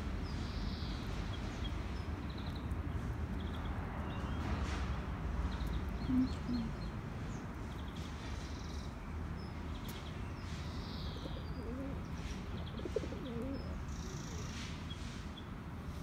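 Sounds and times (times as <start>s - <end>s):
small birds chirping: 0.2s - 16.0s
pigeon cooing: 6.0s - 6.8s, 11.2s - 13.8s.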